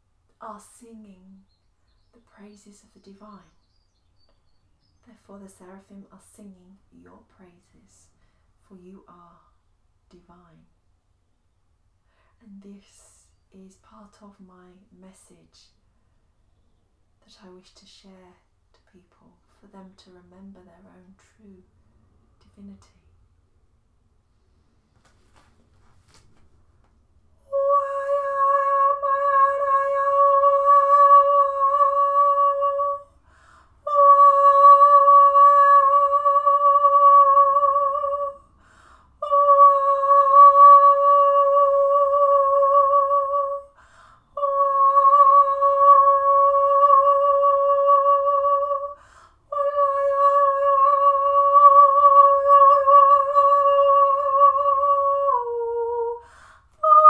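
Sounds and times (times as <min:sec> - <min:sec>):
woman singing held notes: 0:27.5 - 0:33.2.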